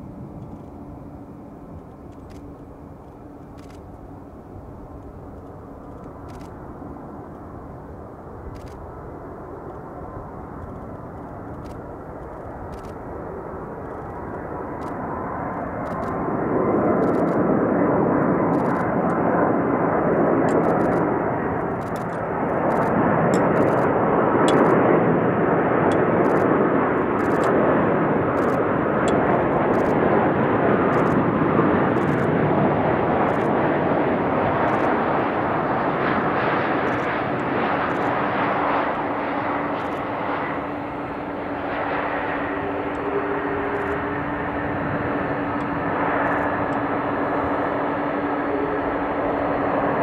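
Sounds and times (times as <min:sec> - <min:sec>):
jet engines roaring: 0:00.0 - 0:50.0.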